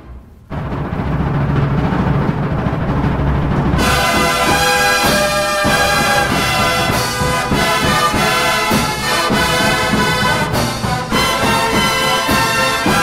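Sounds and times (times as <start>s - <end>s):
drums: 0.0s - 13.0s
bugles playing held chords: 3.8s - 13.0s.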